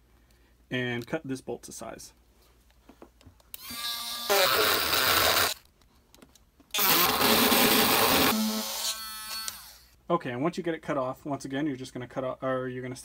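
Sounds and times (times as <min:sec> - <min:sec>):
rotary tool motor whine: 0:03.6 - 0:05.6, 0:06.8 - 0:10.0.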